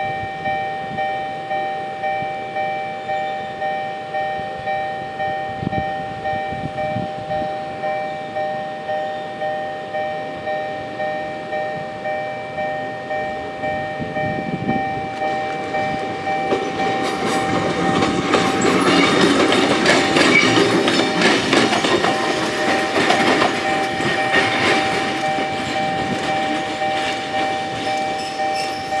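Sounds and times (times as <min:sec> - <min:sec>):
level crossing alarm bell ringing: 0:00.0 - 0:29.0
train wheels clattering over rail joints: 0:15.1 - 0:29.0.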